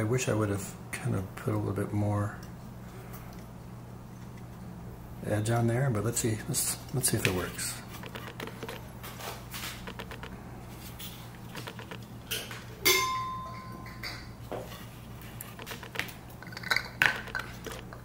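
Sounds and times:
glass teapot clinking: 0:12.8 - 0:14.4.

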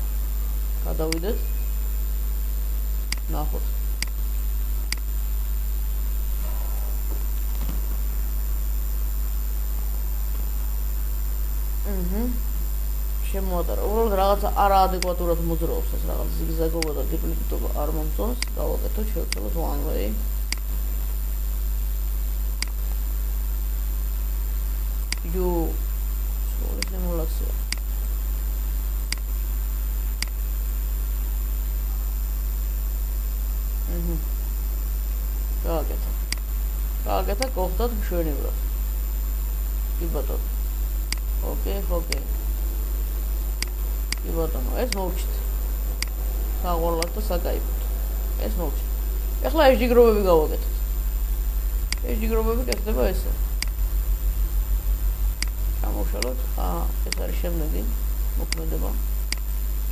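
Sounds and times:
faint high whine: 0:00.0 - 0:59.9
low electrical hum: 0:00.0 - 0:59.9
sharp click: 0:30.2 - 0:30.4.

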